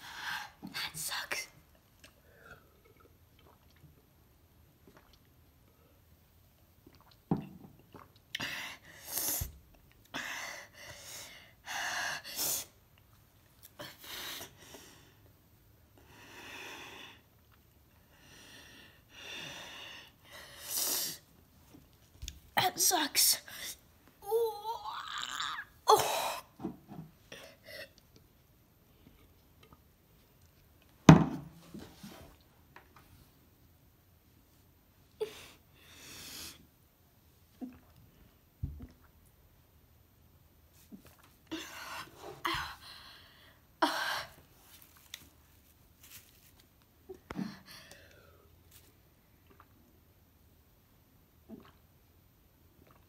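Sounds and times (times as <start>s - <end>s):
plastic cup thump: 31.1s - 31.6s.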